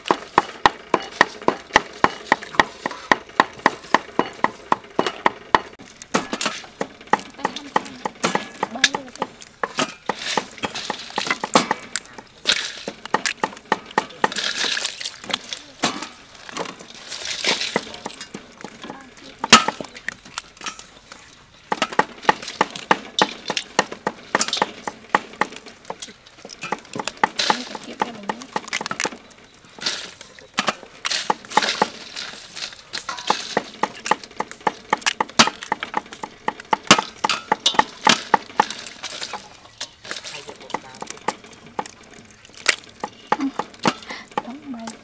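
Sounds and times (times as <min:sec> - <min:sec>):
crab shells cracking: 0:00.0 - 0:45.0
water splashing: 0:07.4 - 0:20.4, 0:37.0 - 0:45.0
clinks in steel basin: 0:33.0 - 0:33.6.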